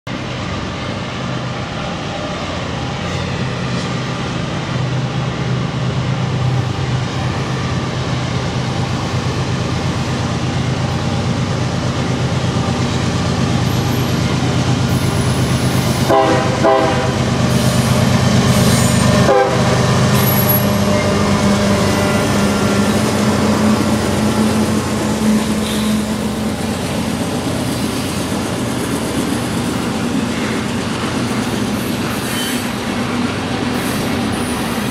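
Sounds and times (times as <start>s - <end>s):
diesel locomotives running: 0.1s - 34.9s
train wheels on rail: 0.1s - 34.9s
train horn: 16.0s - 17.9s, 18.5s - 26.5s.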